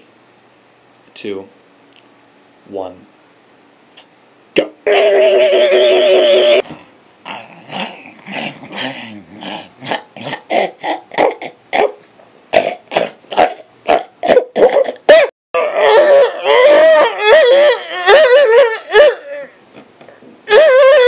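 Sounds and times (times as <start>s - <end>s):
man making silly vocal bursts: 4.0s - 6.7s, 7.3s - 11.9s, 12.5s - 15.3s
man making warbling sound: 4.6s - 6.7s.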